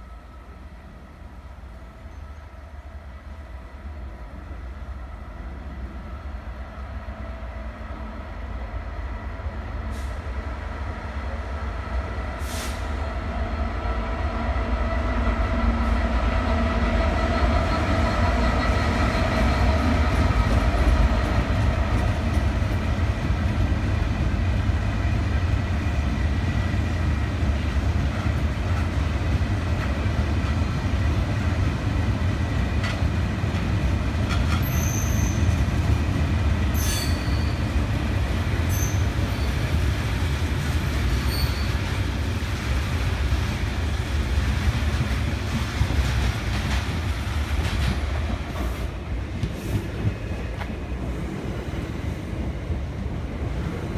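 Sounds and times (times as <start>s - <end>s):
diesel locomotive passing: 0.0s - 53.9s
brief hisses: 12.4s - 12.9s.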